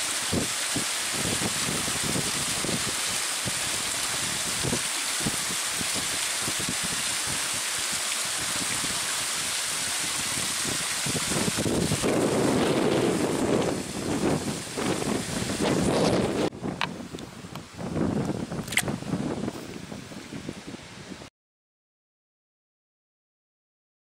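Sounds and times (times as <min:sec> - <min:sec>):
steady hiss: 0:00.0 - 0:18.5
wind buffeting microphone: 0:00.0 - 0:21.3
low rumbles and thumps: 0:11.4 - 0:17.0.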